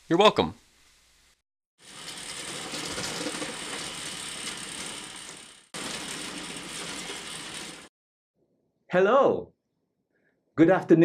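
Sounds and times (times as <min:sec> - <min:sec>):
elevator mechanism whirring: 0:01.8 - 0:07.9.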